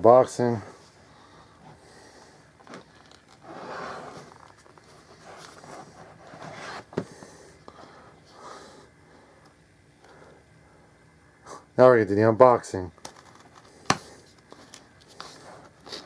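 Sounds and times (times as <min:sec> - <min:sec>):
cardboard scraping and rustling: 0:02.7 - 0:07.1.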